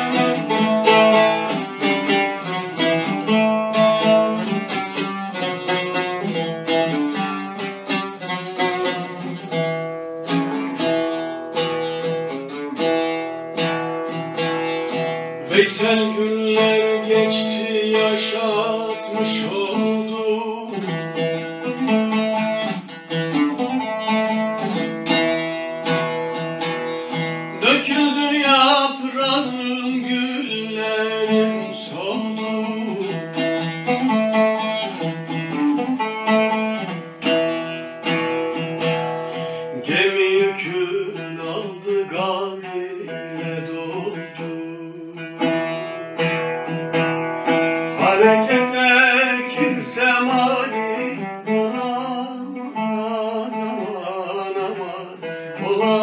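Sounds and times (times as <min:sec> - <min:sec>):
oud plucked with a plectrum: 0:00.0 - 0:56.0
man singing: 0:14.9 - 0:22.2, 0:27.1 - 0:34.2, 0:39.3 - 0:46.1, 0:47.9 - 0:56.0.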